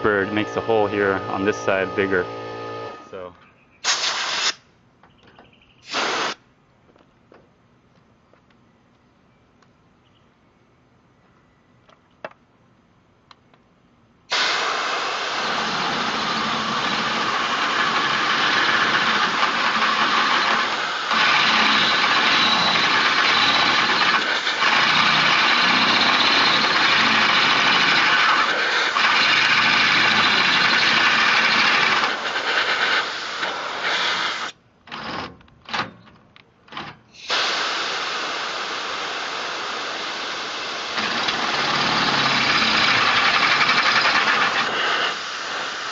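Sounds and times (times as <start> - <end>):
drill boring through steel: 0.0 - 3.2, 14.3 - 34.5, 37.2 - 45.9
air blow gun hissing: 3.8 - 4.6, 5.8 - 6.4, 14.3 - 34.6, 37.1 - 45.9.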